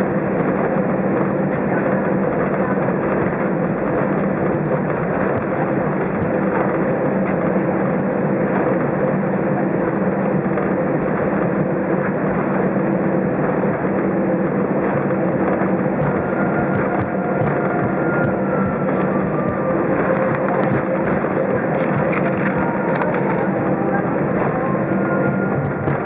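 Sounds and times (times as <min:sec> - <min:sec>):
airplane engine drone: 0:00.0 - 0:26.0
low hum: 0:00.0 - 0:26.0.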